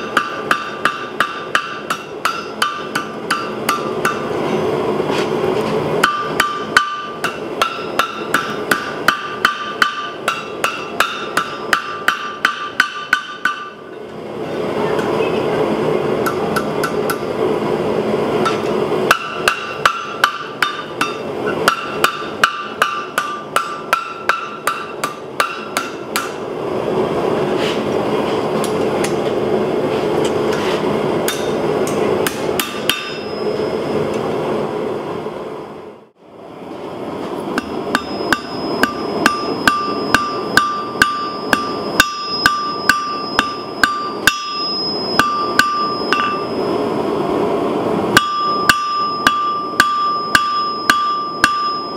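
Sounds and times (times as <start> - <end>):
hammer striking steel on anvil: 0.0 - 5.4, 6.0 - 14.0, 16.2 - 17.3, 18.4 - 26.4, 31.2 - 34.2, 37.5 - 46.7, 48.1 - 51.9.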